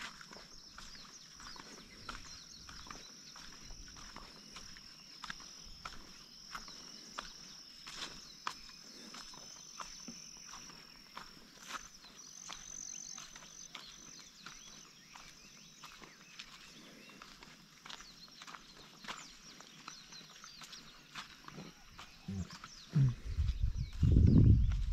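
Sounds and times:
high-pitched insect trill: 0:00.0 - 0:15.0
footsteps on dirt track: 0:00.0 - 0:24.9.

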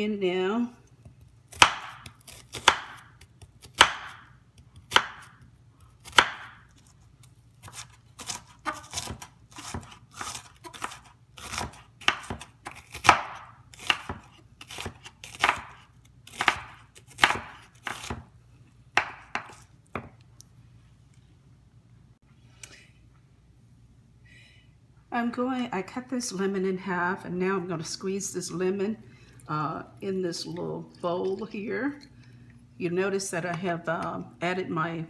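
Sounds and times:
knife chopping on wooden board: 0:01.5 - 0:03.0, 0:03.6 - 0:05.4, 0:06.0 - 0:06.6, 0:07.6 - 0:18.3, 0:19.0 - 0:20.2.

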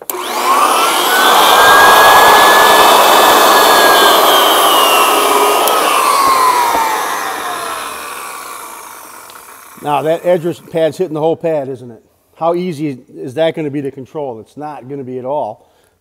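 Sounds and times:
sander motor whine: 0:00.0 - 0:10.7.

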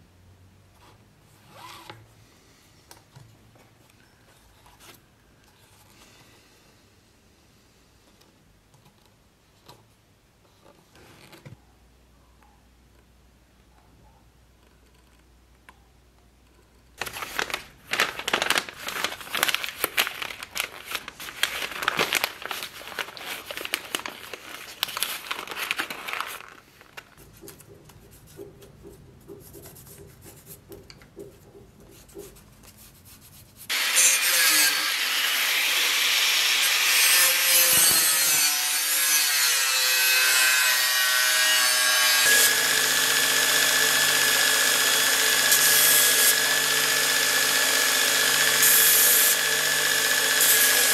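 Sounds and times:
angle grinder cutting steel: 0:33.7 - 0:50.9.

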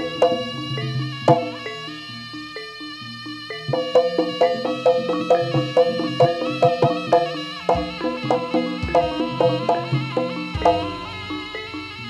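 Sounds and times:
drum beat: 0:00.0 - 0:01.6, 0:03.7 - 0:11.7
gamelan music: 0:00.0 - 0:12.0.

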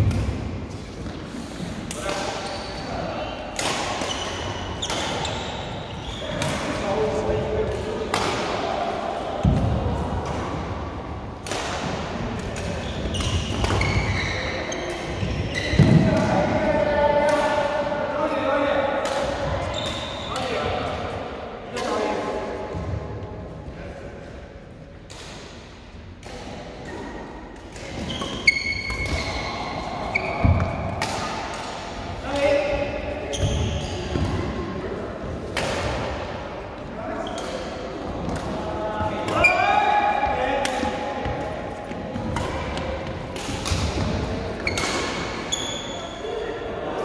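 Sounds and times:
shoes squeaking on court floor: 0:02.3 - 0:03.4, 0:04.0 - 0:06.6, 0:12.6 - 0:16.0, 0:19.6 - 0:20.4, 0:27.9 - 0:30.9, 0:33.3 - 0:34.2, 0:43.6 - 0:46.3
rackets striking shuttlecock: 0:03.5 - 0:05.5, 0:11.4 - 0:14.2, 0:40.6 - 0:45.5
racket striking shuttlecock: 0:42.2 - 0:45.3.

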